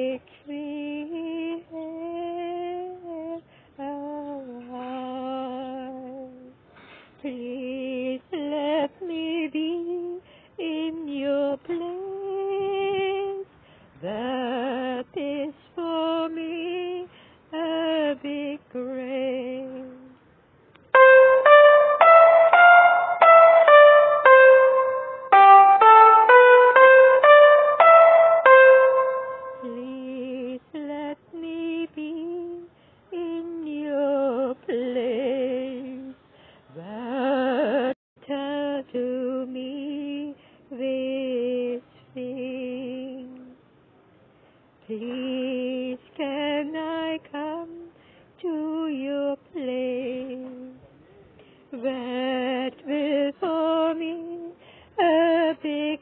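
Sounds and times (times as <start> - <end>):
descending keyboard notes: 21.0 - 29.9.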